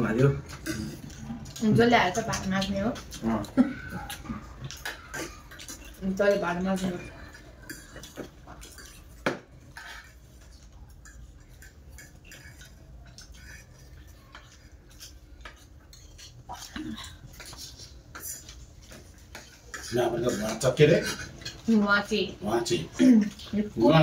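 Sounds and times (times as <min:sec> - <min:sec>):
forks clinking on plates: 0:04.1 - 0:21.7.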